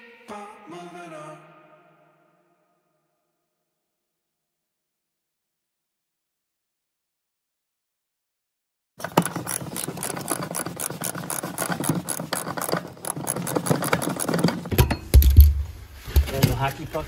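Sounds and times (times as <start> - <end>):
ratchet wrench clicking: 9.0 - 15.3.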